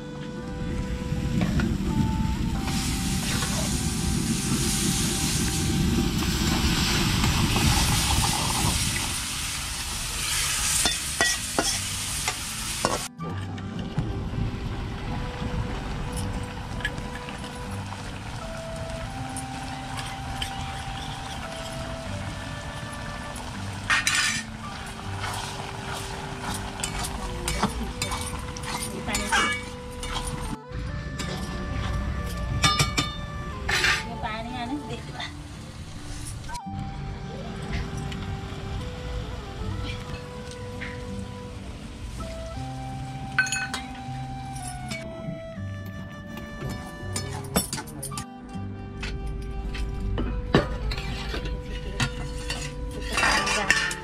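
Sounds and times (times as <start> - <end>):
curry sizzling in a pan: 2.7 - 13.1, 17.0 - 30.5
metal spatula scraping pan: 23.9 - 30.4, 50.6 - 54.0
metal clinks on a pan: 52.0 - 54.0.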